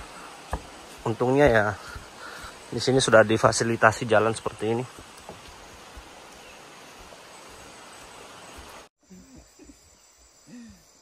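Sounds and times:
rainforest hiss: 0:00.0 - 0:11.0.

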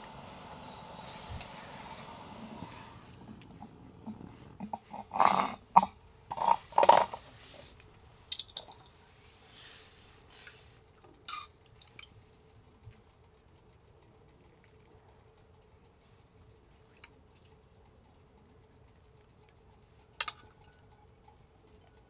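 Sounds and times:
gas stove burner hiss: 0:00.0 - 0:22.0
metal cups and pots clinking: 0:20.2 - 0:20.8.

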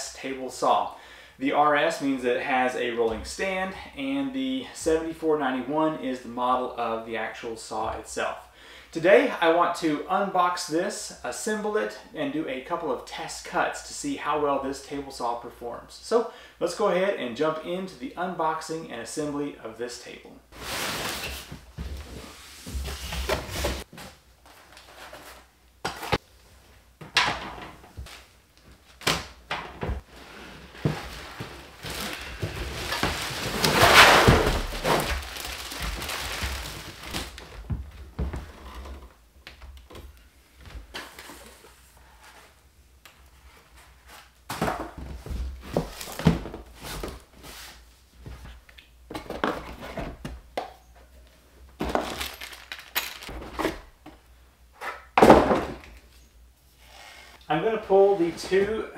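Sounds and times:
packaging scraping and rustling: 0:30.0 - 0:37.6.

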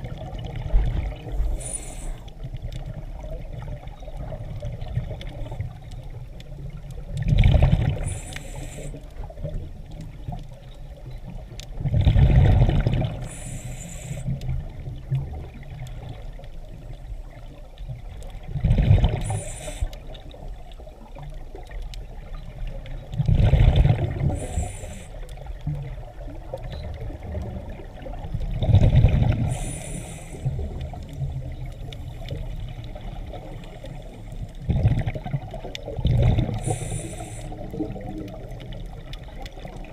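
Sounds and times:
bubbling exhaled air underwater: 0:00.0 - 0:10.4, 0:11.2 - 0:16.4, 0:18.3 - 0:39.9
regulator hiss: 0:01.3 - 0:02.3, 0:08.0 - 0:09.0, 0:13.2 - 0:14.4, 0:19.2 - 0:20.0, 0:24.3 - 0:25.2, 0:29.5 - 0:30.7, 0:36.6 - 0:37.7.

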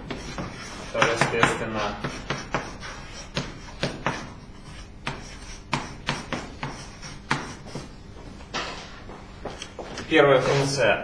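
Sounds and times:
chalk tapping and scraping on blackboard: 0:00.0 - 0:08.0.

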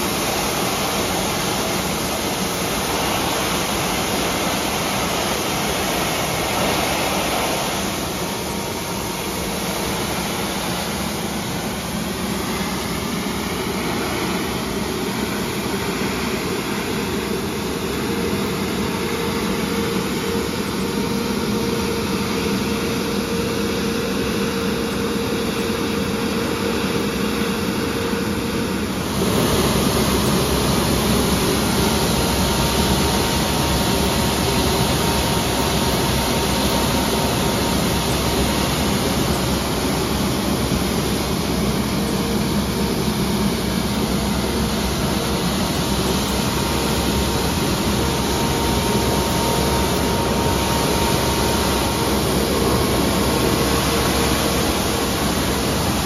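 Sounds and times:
water spray on road: 0:00.0 - 0:19.3, 0:29.0 - 0:56.0
faint constant whine: 0:00.0 - 0:56.0
road sweeper engine drone: 0:00.0 - 0:56.0
spinning brush scrubbing road: 0:29.0 - 0:32.2.

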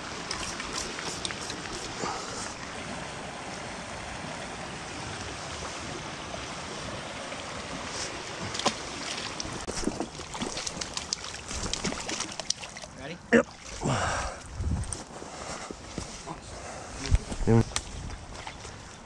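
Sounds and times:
creek water flowing: 0:00.0 - 0:19.0.

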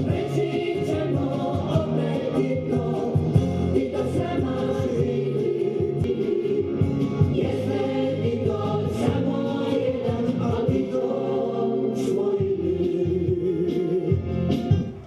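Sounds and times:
choir singing long held notes: 0:00.0 - 0:14.1.

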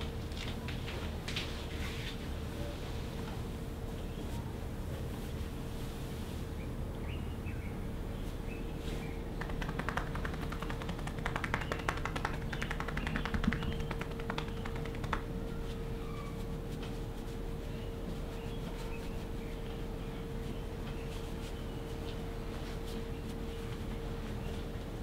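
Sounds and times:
hands tapping on back: 0:09.4 - 0:15.4.

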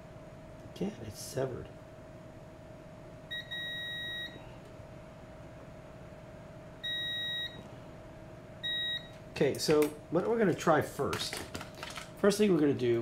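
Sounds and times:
faint steady hum: 0:00.0 - 0:13.0
multimeter continuity beeps: 0:03.3 - 0:04.4, 0:06.8 - 0:07.7, 0:08.6 - 0:09.2.

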